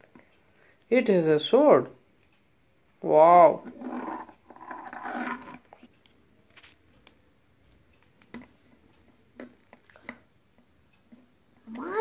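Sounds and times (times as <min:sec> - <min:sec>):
child growling: 0:11.6 - 0:12.0.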